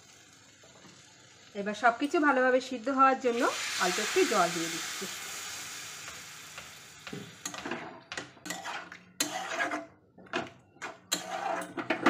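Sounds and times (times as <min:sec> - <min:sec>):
metal spatula scraping a pan: 0:08.4 - 0:10.0, 0:10.8 - 0:12.0.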